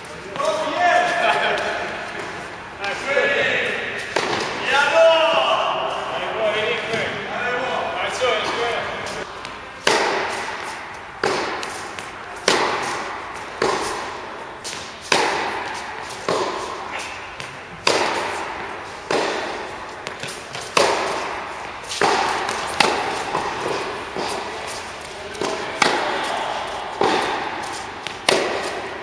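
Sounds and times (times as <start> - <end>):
tennis racket hitting ball: 3.6 - 4.7, 8.4 - 29.0
tennis ball bouncing: 3.8 - 4.6, 8.4 - 29.0.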